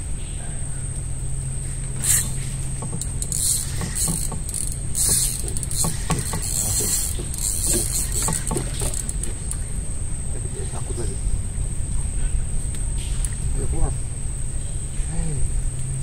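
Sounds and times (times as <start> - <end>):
fishing reel ratcheting: 2.0 - 9.6.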